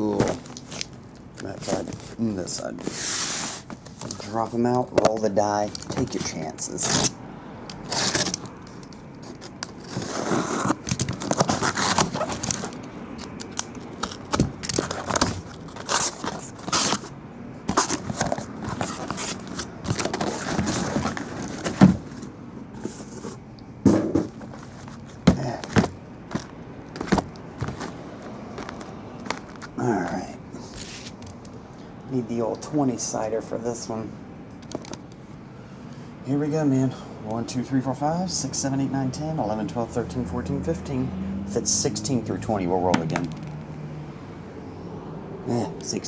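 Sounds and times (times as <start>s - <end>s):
cardboard scraping: 0.0s - 4.7s, 7.8s - 17.1s, 17.7s - 29.8s, 30.6s - 31.2s
cardboard rustling: 0.0s - 7.2s, 7.8s - 31.4s
box cutter cutting cardboard: 7.8s - 8.5s, 9.2s - 12.8s, 14.0s - 17.1s
boxes knocking on a table: 23.8s - 24.4s, 25.2s - 27.9s.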